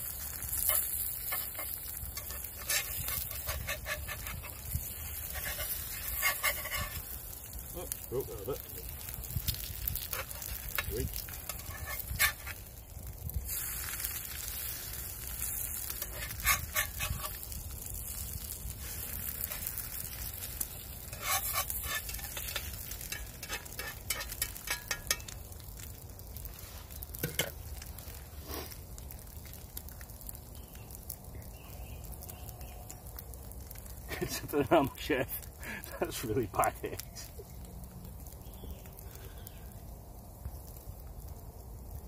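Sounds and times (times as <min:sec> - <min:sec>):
eggs sizzling in a frying pan: 0:00.0 - 0:42.0
metal spatula scraping a pan: 0:00.1 - 0:07.2, 0:10.0 - 0:12.6, 0:15.3 - 0:17.5, 0:18.8 - 0:25.4, 0:27.2 - 0:27.6.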